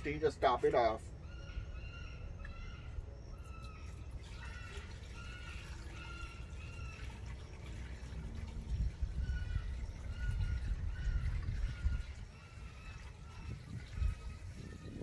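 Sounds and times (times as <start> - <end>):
bird calling: 0.0 - 8.3, 9.0 - 15.0
liquid pouring into tank: 3.9 - 15.0.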